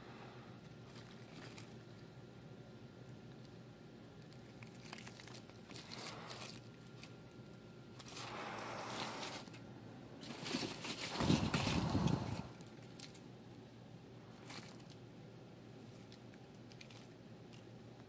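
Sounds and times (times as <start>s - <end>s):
cardboard rustling and crackling: 10.2s - 13.2s
faint scratches and ticks: 10.2s - 13.2s.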